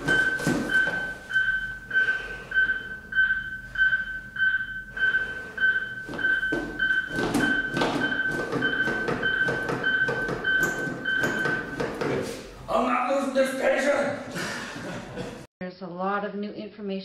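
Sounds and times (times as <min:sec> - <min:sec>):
metronome beep: 0:00.0 - 0:11.9.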